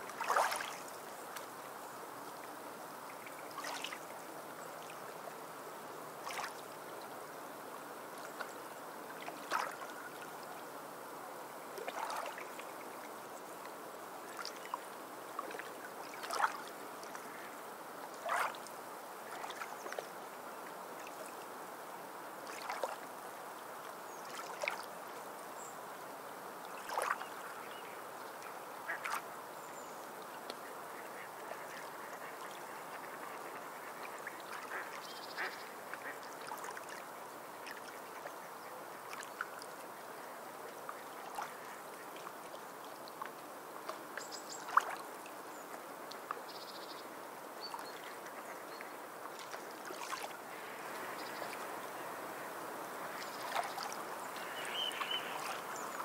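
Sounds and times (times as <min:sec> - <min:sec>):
waves washing ashore: 0:00.0 - 0:01.0, 0:03.2 - 0:04.0, 0:49.4 - 0:56.0
sea birds calling: 0:30.6 - 0:36.2, 0:53.1 - 0:56.0.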